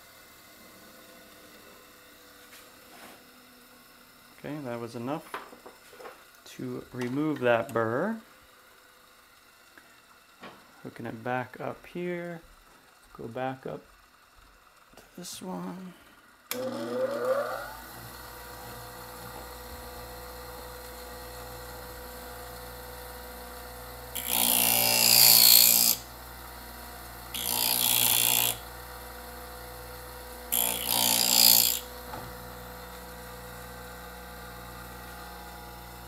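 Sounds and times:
bench grinder motor humming: 15.5s - 36.0s
blade grinding with hiss: 24.1s - 26.1s, 27.3s - 28.6s, 30.5s - 31.9s.

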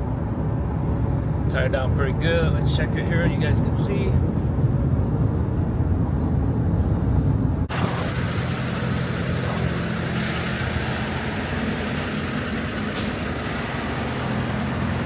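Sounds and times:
muffled vehicle cabin rumble: 0.0s - 11.7s
traffic noise: 0.0s - 15.0s
truck engine hum: 0.0s - 15.0s.

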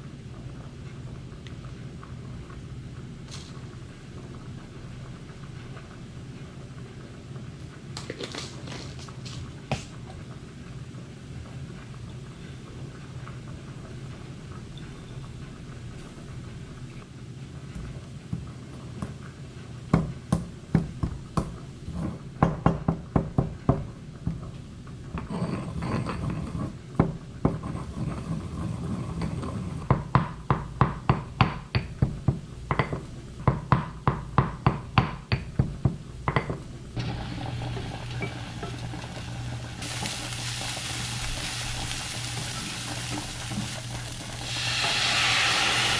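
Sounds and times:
pestle pounding in stone mortar: 19.9s - 21.6s, 22.4s - 24.4s, 29.8s - 36.6s
steady hum: 36.0s - 45.9s
onions sizzling in a pan: 37.0s - 45.9s.

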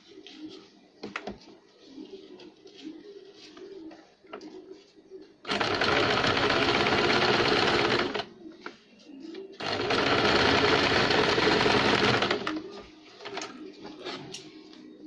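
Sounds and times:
sewing machine stitching: 5.4s - 8.3s, 9.6s - 12.6s.

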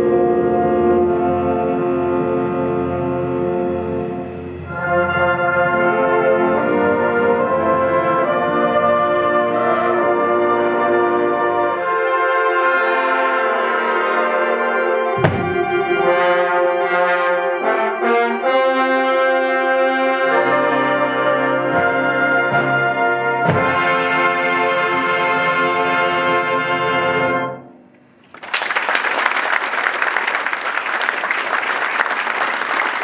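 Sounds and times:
brass band playing chords: 0.0s - 28.2s
audience applause: 28.2s - 33.0s.

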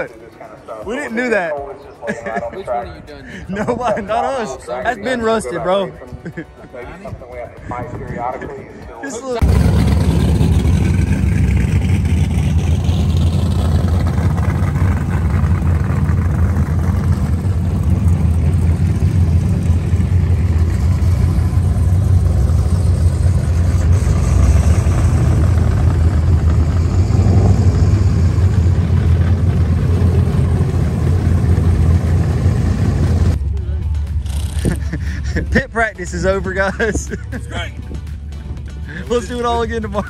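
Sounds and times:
car engine running: 9.4s - 33.4s.

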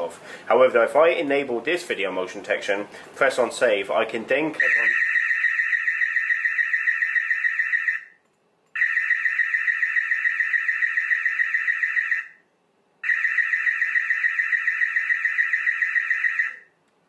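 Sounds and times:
warbling alarm siren: 4.6s - 8.2s, 8.8s - 12.4s, 13.0s - 16.7s.

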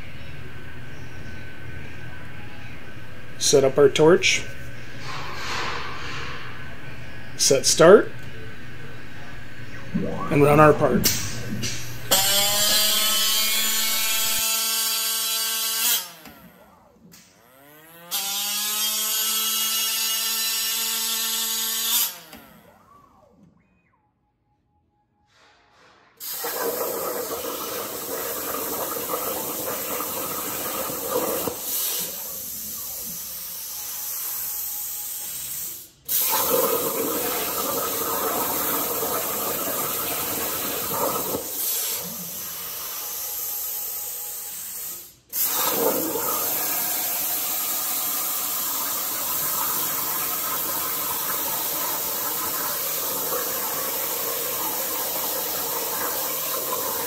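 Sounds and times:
plasma torch hissing: 25.9s - 57.0s.

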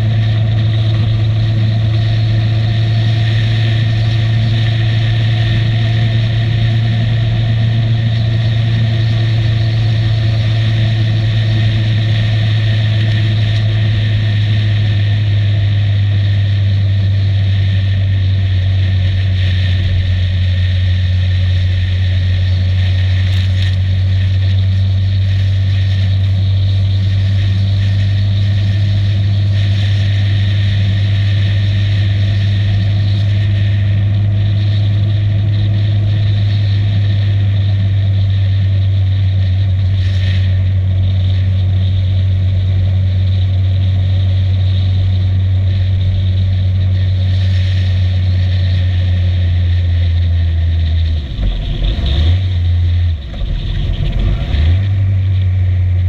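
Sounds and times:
motorcycle engine cruising: 0.0s - 56.0s.

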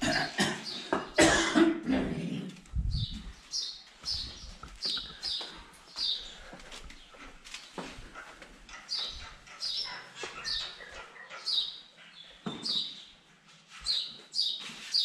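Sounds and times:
loud cough-like voice sound: 0.0s - 2.2s
footsteps on stone stairs: 4.0s - 9.4s.

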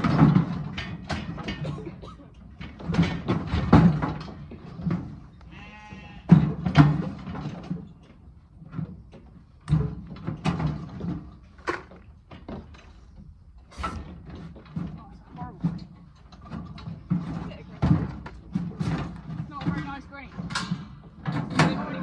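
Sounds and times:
metallic clanks and rattles: 0.0s - 22.0s
lamb bleating: 5.5s - 6.3s.

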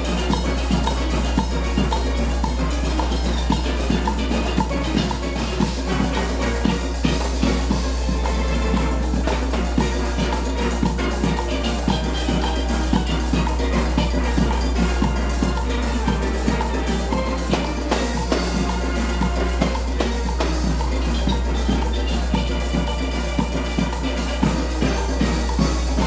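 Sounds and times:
steady beat: 0.0s - 26.0s
steel band playing: 0.0s - 26.0s.

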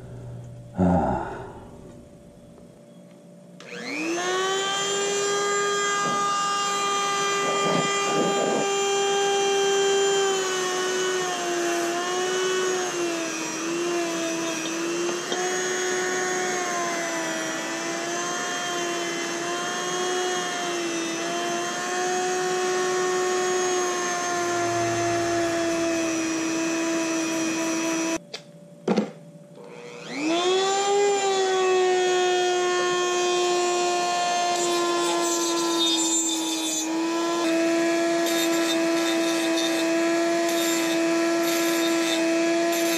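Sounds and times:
rotary tool whining on metal: 3.6s - 28.2s, 29.6s - 42.9s.

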